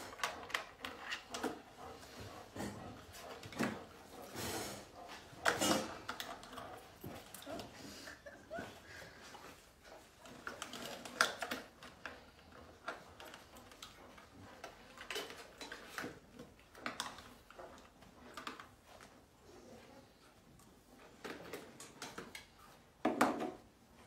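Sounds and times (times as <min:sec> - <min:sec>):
puppy claws clicking on plastic: 0:10.2 - 0:18.7.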